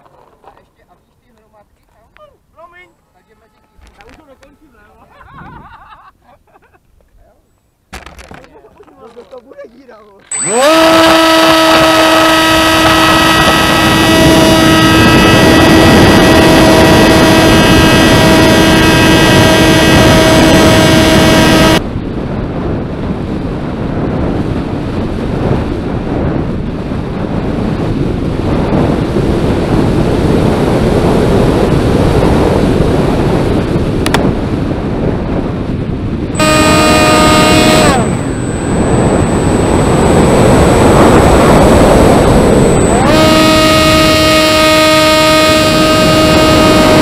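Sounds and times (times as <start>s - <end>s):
model airplane motor whine: 10.3s - 21.8s, 36.4s - 47.0s
wind rushing: 10.4s - 47.0s.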